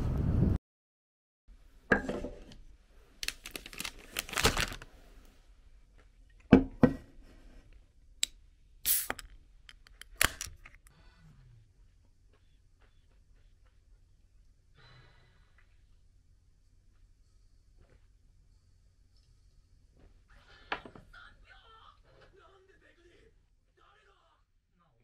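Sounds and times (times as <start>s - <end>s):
paper wrapper rustling: 3.2s - 4.9s
objects knocking on wooden table: 6.5s - 7.1s
can hiss: 8.8s - 9.3s.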